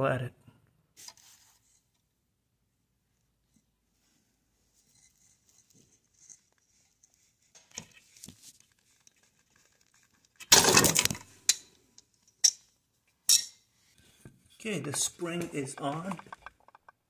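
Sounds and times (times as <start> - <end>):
faint metal scrapes and ticks: 4.7 - 10.4, 13.9 - 17.0.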